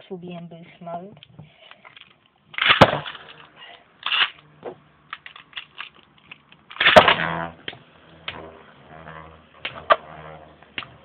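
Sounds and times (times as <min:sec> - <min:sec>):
spinning top ripping launch: 0:02.5 - 0:11.0
spinning top landing clack: 0:05.2 - 0:11.0.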